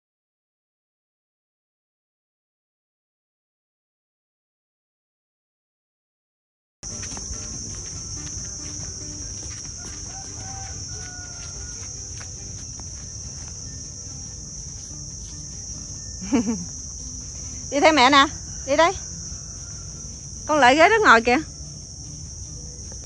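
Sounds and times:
high-pitched insect buzzing: 0:06.8 - 0:23.0.

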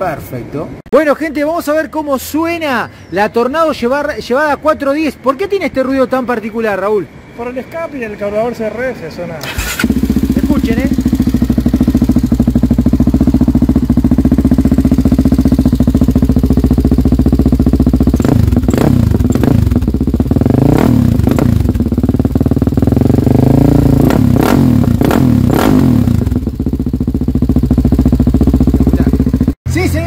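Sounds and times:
dirt bike engine idling: 0:09.6 - 0:30.0
engine revving in throttle blips: 0:18.2 - 0:21.8, 0:22.8 - 0:26.4.

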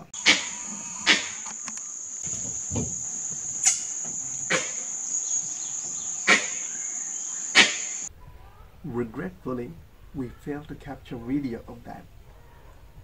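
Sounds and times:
high-pitched insect drone: 0:00.2 - 0:08.1.

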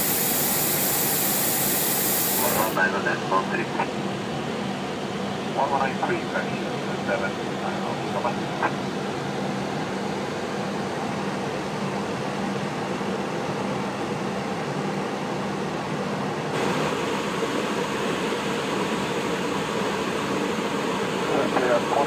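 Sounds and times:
jet airliner cabin noise: 0:00.0 - 0:04.4, 0:16.6 - 0:22.0.

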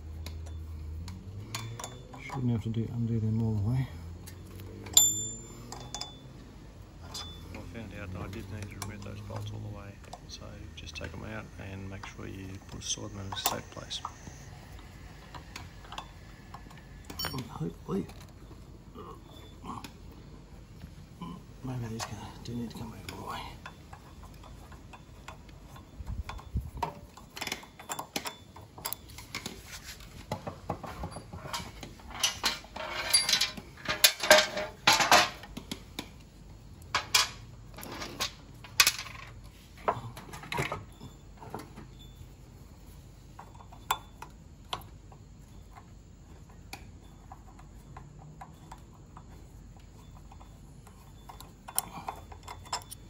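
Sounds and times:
bolts and washers clinking: 0:00.0 - 0:03.6, 0:04.2 - 0:14.2, 0:14.8 - 0:53.0
allen key tapping on metal: 0:15.3 - 0:18.3, 0:23.1 - 0:29.6, 0:43.3 - 0:53.0.

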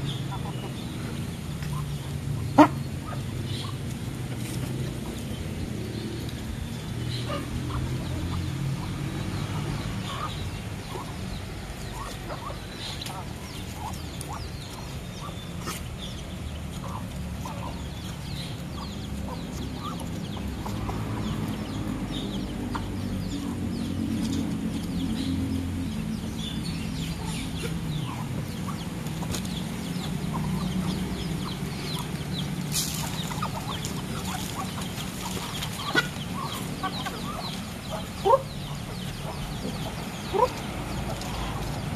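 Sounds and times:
chicken clucking: 0:27.2 - 0:41.8
pecking clicks on gravel: 0:29.0 - 0:36.7.

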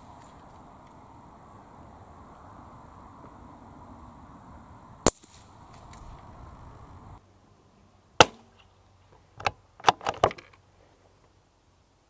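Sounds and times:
rifle shot: 0:05.0 - 0:05.9.

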